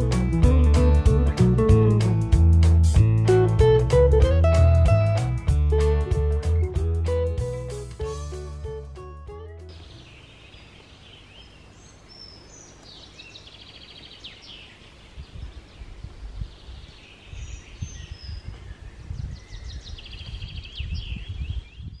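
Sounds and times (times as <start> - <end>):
songbirds chirping and trilling: 9.3 - 22.0
wind buffeting microphone: 15.0 - 22.0.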